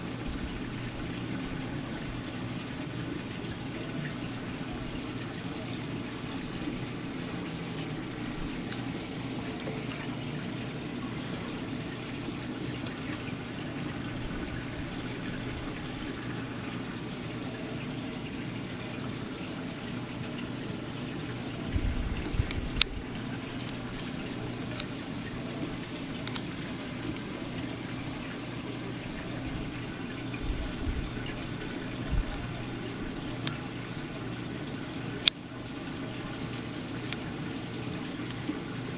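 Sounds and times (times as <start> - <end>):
low steady hum: 0.0 - 38.9
water trickling and splashing: 0.0 - 38.9.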